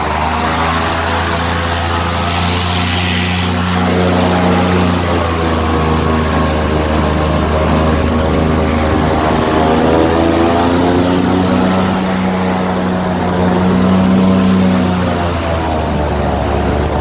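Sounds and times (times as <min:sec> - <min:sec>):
airboat engine and propeller: 0:00.0 - 0:17.0.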